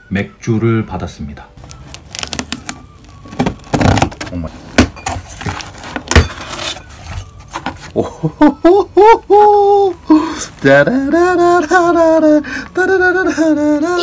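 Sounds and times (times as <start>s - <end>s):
packing tape ripping: 1.6s - 4.4s
cardboard rustling: 1.6s - 8.0s
man's wavering ohh: 8.0s - 14.0s.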